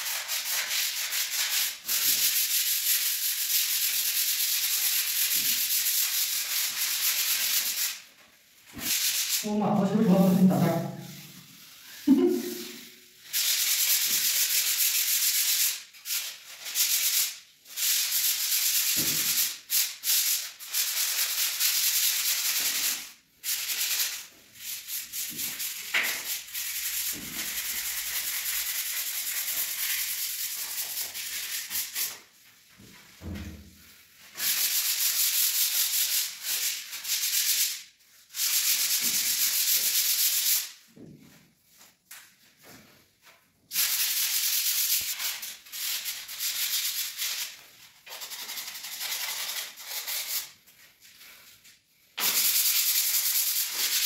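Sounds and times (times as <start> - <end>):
sandpaper scratching on putty: 43.8 - 50.5.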